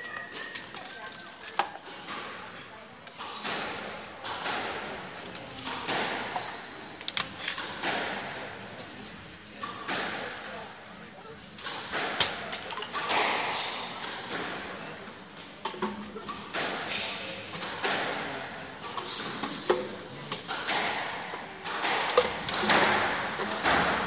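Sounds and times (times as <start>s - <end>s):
shoes squeaking on court floor: 0.0s - 1.3s, 3.2s - 24.0s
squash ball hits: 20.4s - 24.0s.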